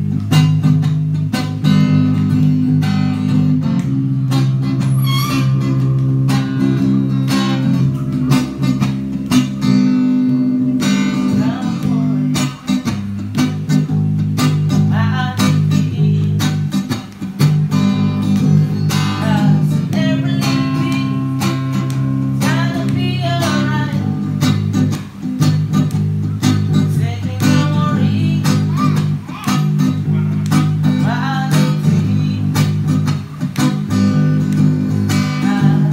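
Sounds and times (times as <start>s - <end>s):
electric bass line: 0.0s - 16.8s
acoustic guitar strumming: 0.0s - 35.9s.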